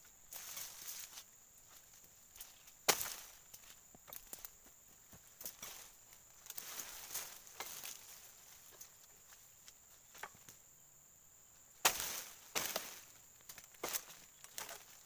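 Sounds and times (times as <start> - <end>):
rustling palm fronds: 0.0 - 10.6, 11.8 - 15.0
high insect whine: 0.0 - 15.0
blade chopping frond: 2.9 - 3.4, 11.8 - 13.0.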